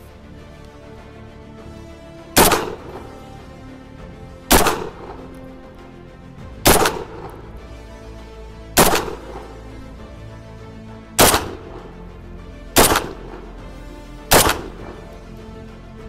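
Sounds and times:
shotgun shots with echo: 2.4 - 3.0, 4.5 - 5.2, 6.6 - 7.3, 8.8 - 9.5, 11.2 - 11.8, 12.8 - 13.4, 14.3 - 15.0.

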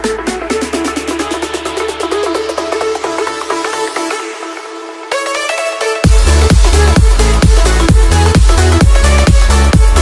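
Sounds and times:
electronic dance music: 0.0 - 10.0
fast kick-drum beat: 6.0 - 10.0.

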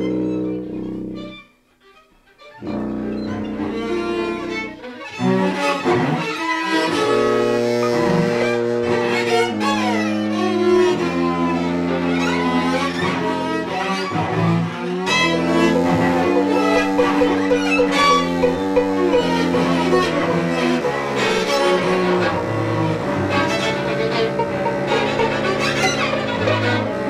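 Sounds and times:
cello bowing: 2.4 - 6.1, 14.4 - 27.0
violin bowing: 15.1 - 27.0.

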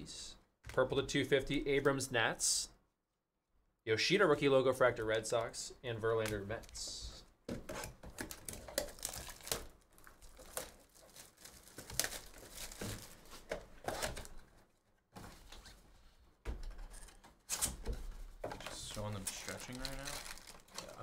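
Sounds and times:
plastic wrapping crinkling and tearing: 8.1 - 14.4, 18.6 - 21.0.

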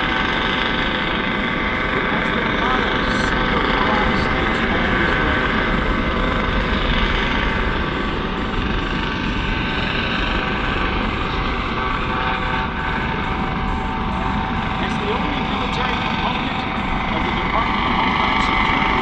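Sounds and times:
helicopter rotor and turbine roar: 0.0 - 19.0
high whine of steady tones: 0.0 - 19.0.

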